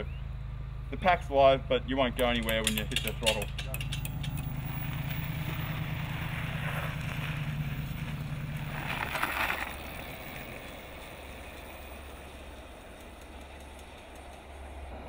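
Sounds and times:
distant road noise: 0.0s - 15.0s
electric motorcycle passing by: 4.0s - 15.0s.

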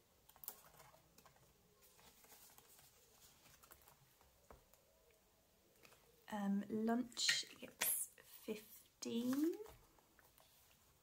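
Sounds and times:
paper banknotes rustling: 0.3s - 4.3s.

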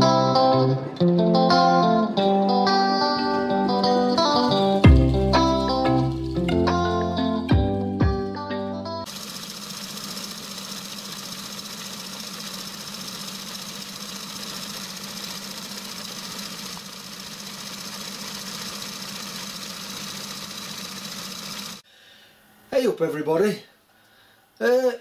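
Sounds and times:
micro lathe motor hum: 9.1s - 21.8s.

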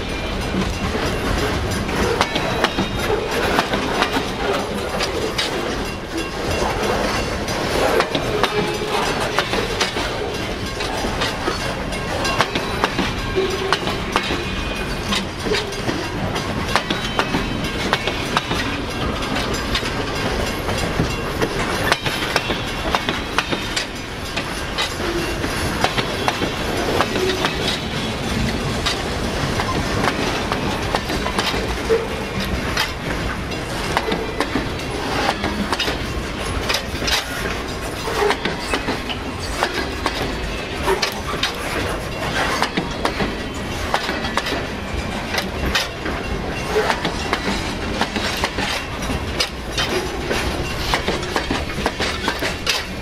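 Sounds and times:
train rumble: 0.0s - 53.0s
train wheels clacking on rails: 0.0s - 53.0s.

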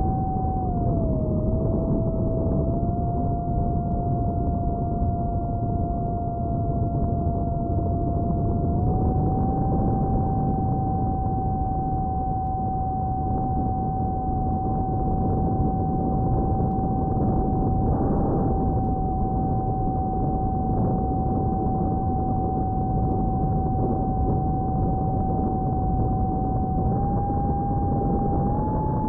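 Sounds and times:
electric motor propeller whine: 0.0s - 29.0s
rushing wind noise: 6.8s - 29.0s.

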